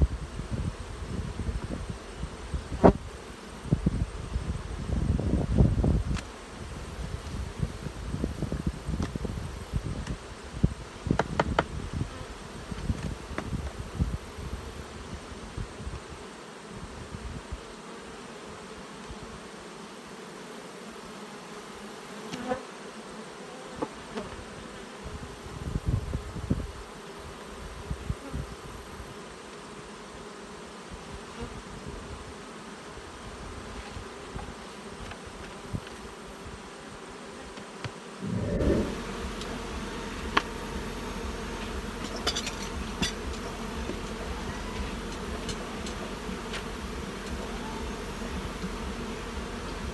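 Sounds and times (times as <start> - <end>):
knocks on wooden hive boxes: 11.1 - 11.8, 12.8 - 13.8, 40.2 - 49.9
bees buzzing: 26.2 - 49.9
low rumble: 38.2 - 40.3.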